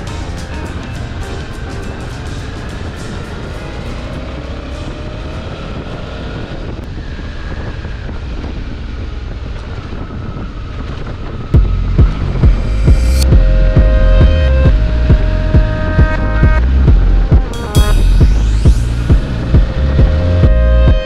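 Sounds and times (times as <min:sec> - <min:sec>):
music bass beats: 0:00.0 - 0:05.0, 0:11.6 - 0:21.0
wind noise on microphone: 0:00.0 - 0:21.0
motorcycle engine running: 0:11.5 - 0:21.0.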